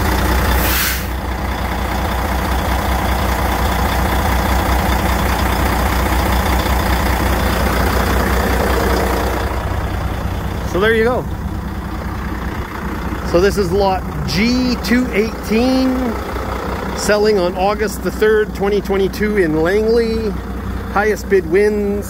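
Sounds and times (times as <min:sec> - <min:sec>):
diesel engine idling: 0:00.0 - 0:22.0
air hiss: 0:00.6 - 0:01.2.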